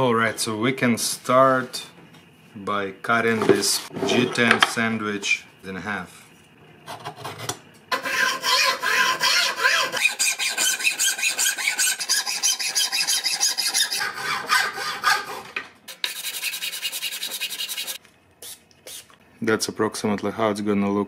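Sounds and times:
hacksaw rasping strokes: 7.2s - 18.0s
fast scratching rub: 16.0s - 19.0s.

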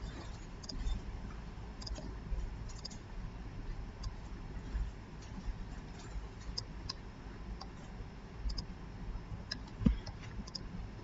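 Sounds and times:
low steady hum: 0.0s - 11.0s
mouse and keyboard clicks: 2.7s - 3.0s, 8.5s - 8.7s.

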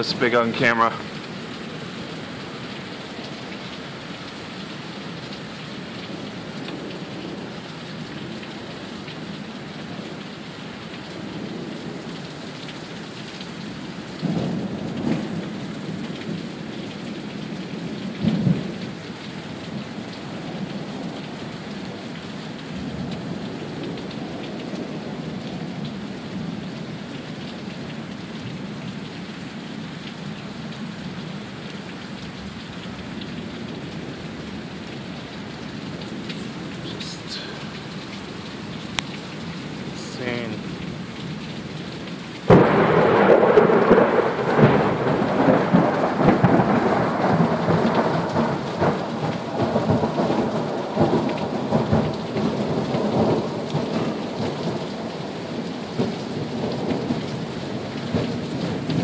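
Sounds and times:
heavy rain falling: 0.0s - 59.0s
thunder rumbling: 42.5s - 59.0s.

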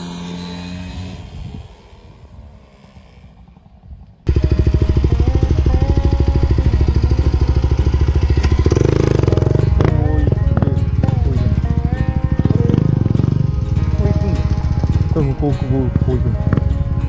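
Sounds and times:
motorcycle engine idling: 3.6s - 17.0s.

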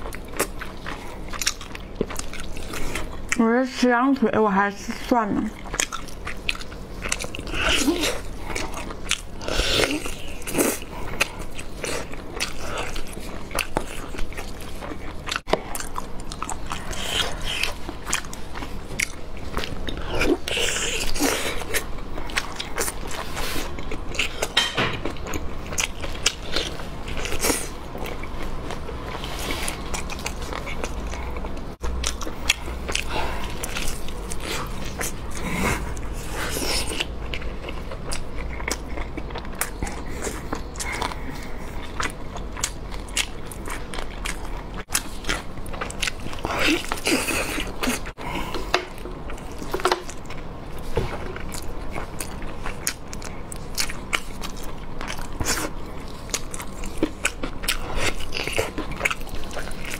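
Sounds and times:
close-miked eating and chewing: 0.0s - 59.9s.

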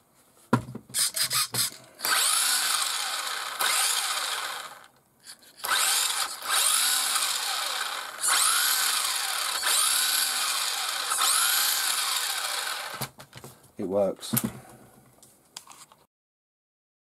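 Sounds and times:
electric motor whirring whine: 1.0s - 4.9s, 5.6s - 13.1s.

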